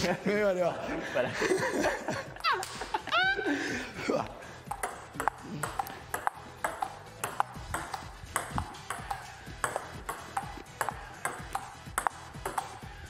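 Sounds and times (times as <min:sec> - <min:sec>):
ping pong ball clicking: 0:04.7 - 0:12.8.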